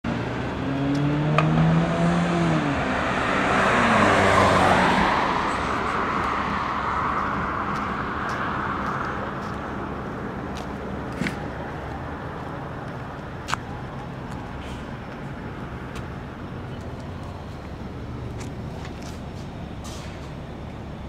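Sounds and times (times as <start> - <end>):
car driving past: 0.1 - 9.2.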